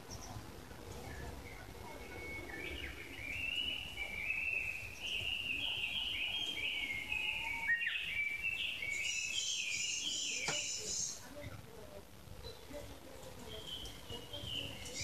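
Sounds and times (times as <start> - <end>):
songbird warbling: 1.0 - 11.2.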